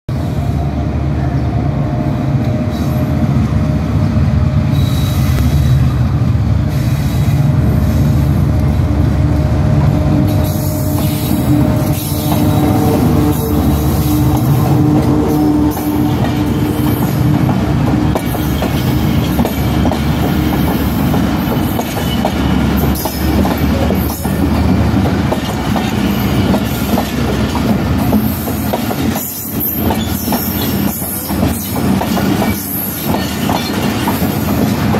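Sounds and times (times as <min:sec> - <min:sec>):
diesel locomotive engine drone: 0:00.1 - 0:34.9
train wheels clattering on rails: 0:09.8 - 0:34.9.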